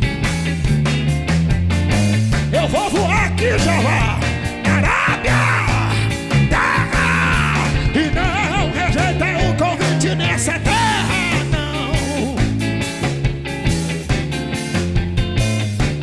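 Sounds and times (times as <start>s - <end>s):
bass guitar: 0.0s - 16.0s
drums: 0.0s - 16.0s
electric guitar lead with bent notes: 0.0s - 16.0s.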